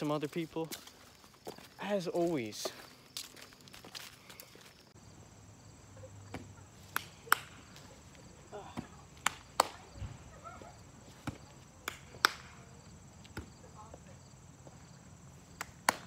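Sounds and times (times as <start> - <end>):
ball slapping into hands: 6.3 - 7.8, 8.8 - 9.9, 11.2 - 12.6, 15.6 - 16.0.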